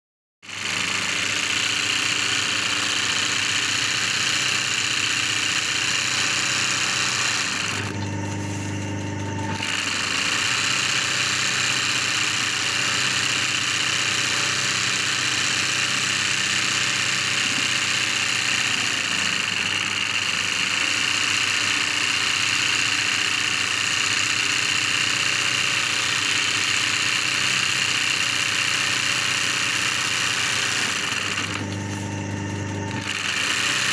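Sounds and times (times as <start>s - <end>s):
embroidery machine stitching: 0.4s - 33.9s
low motor hum: 7.5s - 9.8s, 31.4s - 33.1s.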